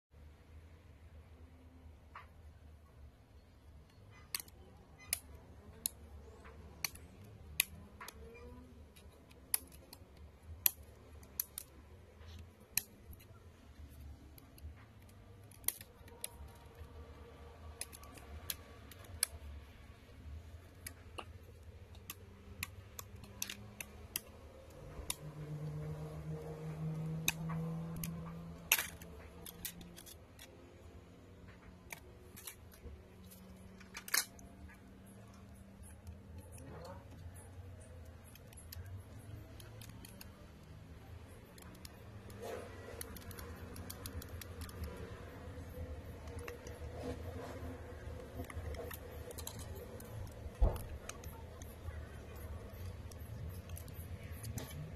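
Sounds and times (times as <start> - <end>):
plastic clips clicking loose: 3.9 - 19.8.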